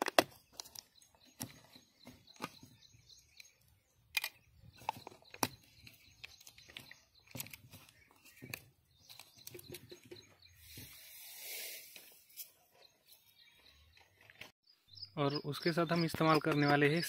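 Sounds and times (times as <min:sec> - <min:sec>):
plastic jar clicks and crinkles: 0:00.0 - 0:02.6.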